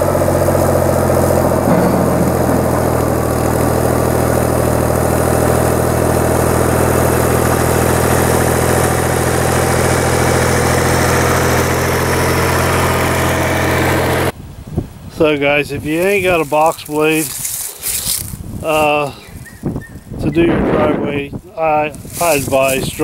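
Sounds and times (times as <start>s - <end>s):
tractor diesel engine running: 0.0s - 14.4s, 21.4s - 23.0s
box blade dragging on gravel: 16.0s - 18.3s.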